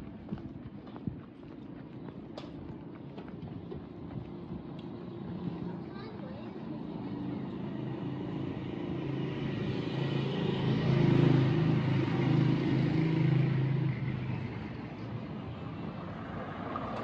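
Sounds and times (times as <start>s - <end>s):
vehicle engine passing by: 6.9s - 17.0s.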